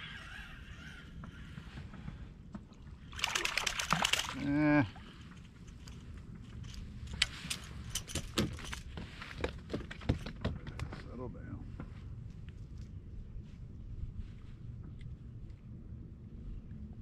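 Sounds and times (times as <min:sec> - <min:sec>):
fish splashing at surface: 0:03.1 - 0:04.4.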